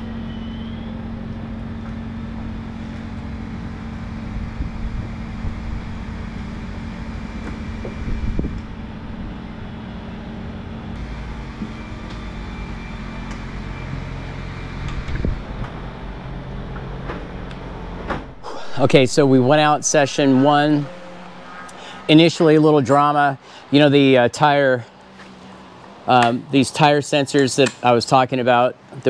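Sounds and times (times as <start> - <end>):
motor droning: 0.1 - 26.9.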